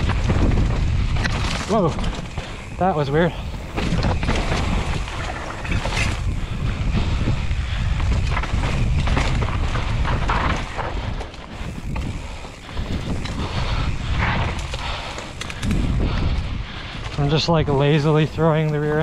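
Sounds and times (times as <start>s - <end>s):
bike rattling and knocking: 0.0s - 19.0s
tyres running over dirt: 0.0s - 19.0s
wind buffeting microphone: 0.0s - 19.0s.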